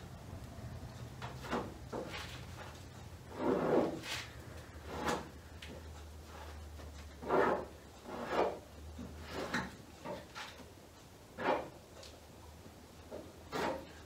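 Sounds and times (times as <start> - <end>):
plastic spreader scraping filler: 1.2 - 5.4, 6.2 - 8.6, 13.5 - 14.0.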